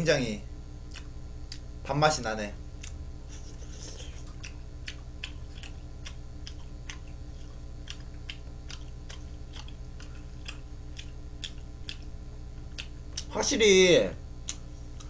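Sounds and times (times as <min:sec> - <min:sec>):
steady low hum: 0:00.0 - 0:15.0
chewing food mouth clicks: 0:00.9 - 0:01.7, 0:02.8 - 0:03.0, 0:03.7 - 0:13.3, 0:14.4 - 0:15.0.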